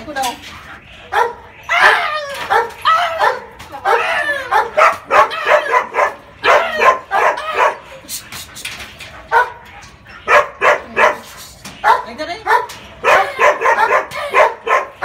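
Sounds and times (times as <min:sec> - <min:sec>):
dog whining and yipping: 0:01.2 - 0:08.0.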